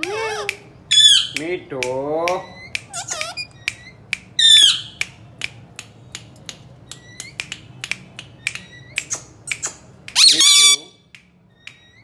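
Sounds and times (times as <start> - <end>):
parakeet squawk: 0.0 - 1.4, 2.4 - 5.0, 8.7 - 10.9
parakeet clicks and chirps: 0.0 - 12.0.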